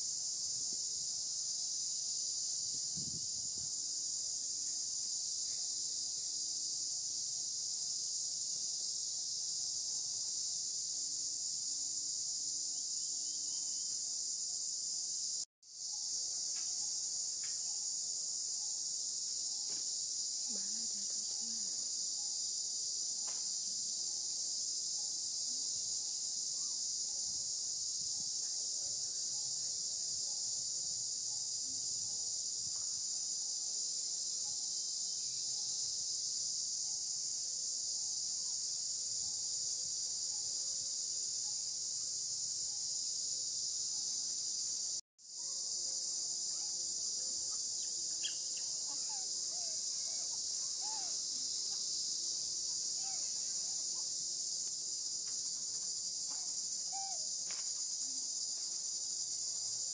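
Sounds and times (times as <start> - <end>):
insects chorus: 0.0 - 59.9.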